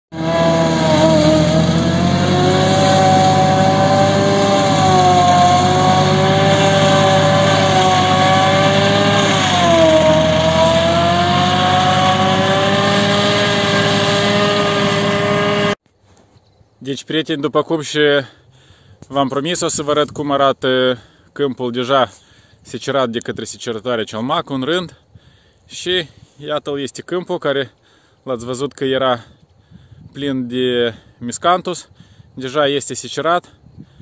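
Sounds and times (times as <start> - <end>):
tractor engine under load: 0.2 - 15.7.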